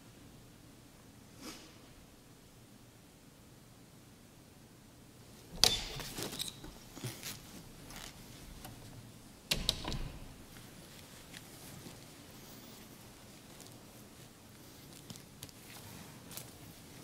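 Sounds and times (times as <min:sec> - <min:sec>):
wooden door clattering: 0:05.5 - 0:06.9, 0:08.5 - 0:10.5
latch and hinges rattling: 0:05.5 - 0:07.0, 0:08.4 - 0:10.5.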